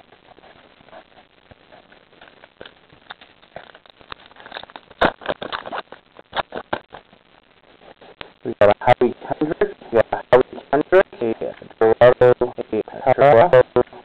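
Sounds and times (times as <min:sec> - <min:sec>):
card pack crinkling: 0:02.1 - 0:07.1.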